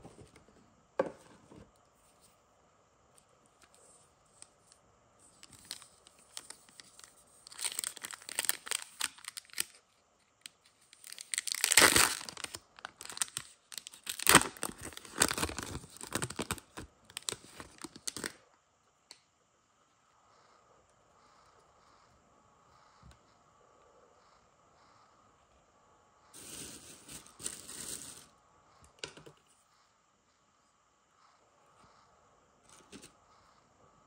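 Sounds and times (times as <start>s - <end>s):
foil wrapper tearing and crinkling: 5.5s - 9.8s, 10.9s - 18.4s.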